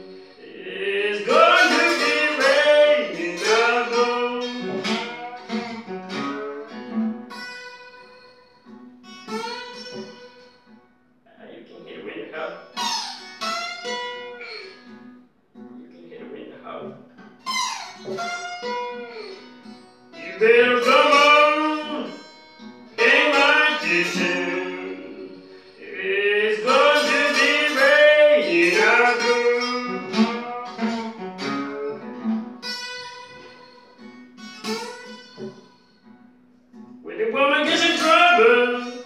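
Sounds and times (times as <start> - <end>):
man singing: 0.0 - 5.3, 20.2 - 22.2, 23.0 - 31.1, 37.0 - 39.0
acoustic guitar playing blues: 0.0 - 39.0.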